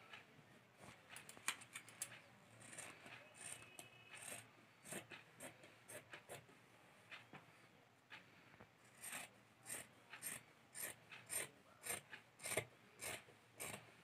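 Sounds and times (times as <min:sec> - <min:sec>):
scissors snipping fabric: 0:01.2 - 0:06.5, 0:08.9 - 0:13.8
cloth rasping: 0:02.5 - 0:06.5, 0:08.9 - 0:14.0.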